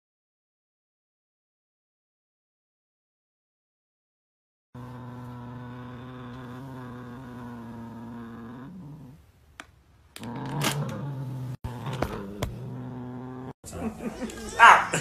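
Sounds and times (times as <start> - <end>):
cat growling low: 4.8 - 9.3, 10.2 - 13.7.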